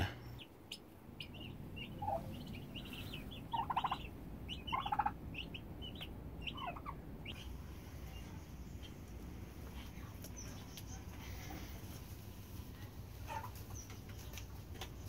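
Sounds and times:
turkey poults peeping: 0.0 - 12.2, 13.0 - 15.0
turkey gobbling: 0.4 - 7.5.

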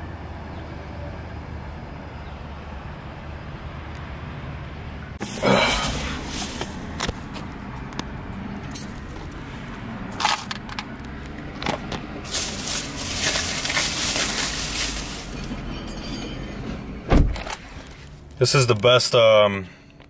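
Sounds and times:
plastic bag rustling: 5.2 - 7.3, 12.2 - 15.7.

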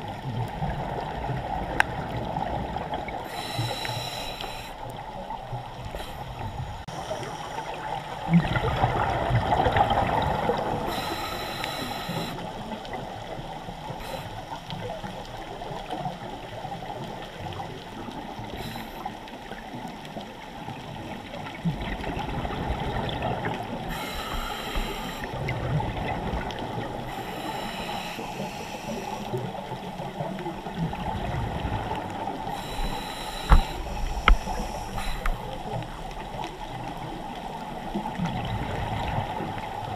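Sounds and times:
steady underwater hiss: 0.0 - 39.9
regulator breathing hiss: 3.2 - 5.0, 5.8 - 7.9, 10.8 - 12.6, 13.9 - 14.5, 18.4 - 19.2, 23.9 - 25.4, 27.1 - 29.4, 32.5 - 36.0
exhaust bubbles gurgling: 5.0 - 19.0, 20.9 - 39.9.

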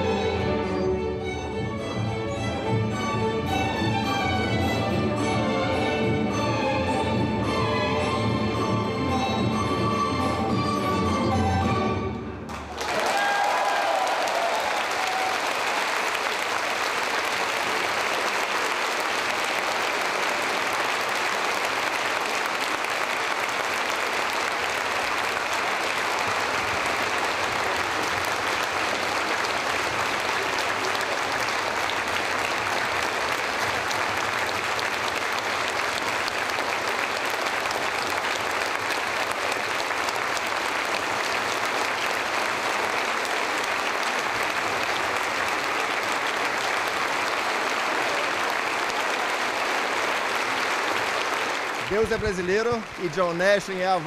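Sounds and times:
audience applauding: 12.5 - 54.0.

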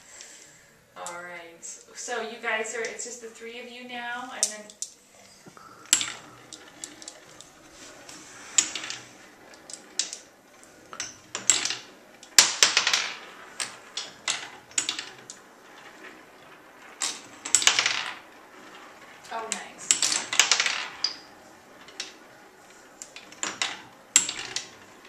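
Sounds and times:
marbles and wooden pieces clattering: 5.5 - 25.0.

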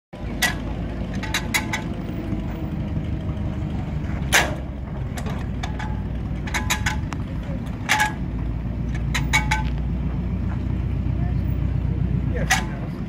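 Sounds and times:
low engine rumble: 0.2 - 13.0
flywheel clack: 0.3 - 2.4, 4.2 - 8.3, 8.9 - 9.8.

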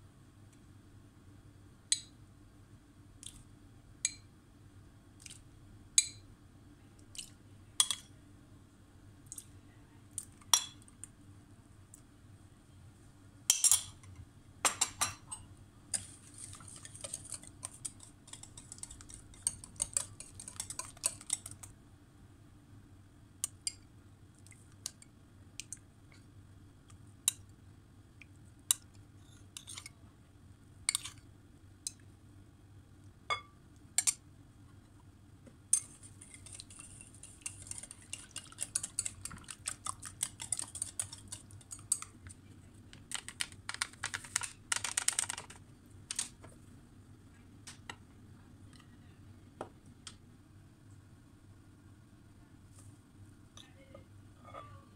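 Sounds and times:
spoon stirring in glass bowl: 13.5 - 21.8, 28.7 - 30.0, 30.8 - 31.2, 35.7 - 45.5.

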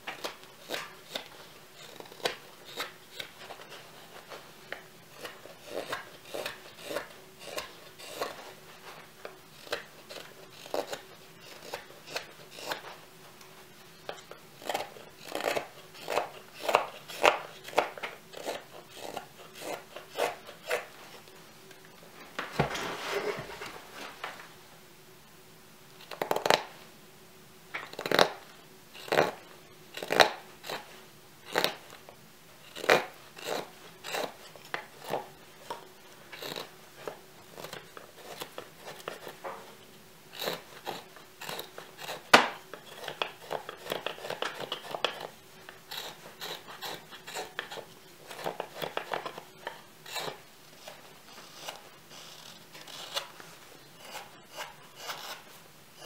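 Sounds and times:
knife slicing wood shavings: 5.2 - 8.4, 14.2 - 20.9.

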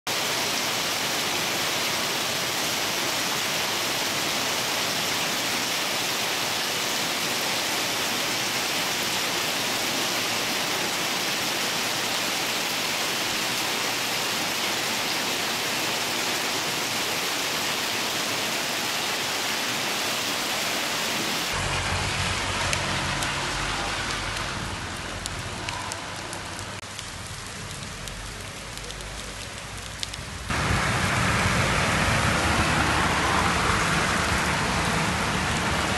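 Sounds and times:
rain: 0.1 - 35.9
hail pattering on pavement: 22.4 - 30.7.

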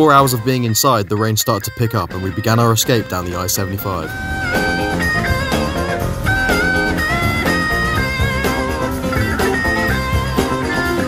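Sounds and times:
guitar-led music with drum beat: 3.8 - 11.0.

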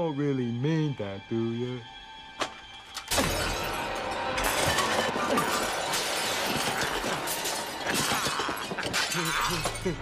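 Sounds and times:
crockery and glass smashing: 3.0 - 10.0.

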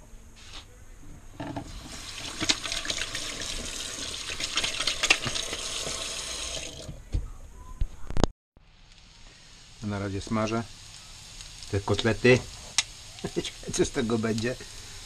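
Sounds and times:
tap water running into steel sink: 1.5 - 7.0.

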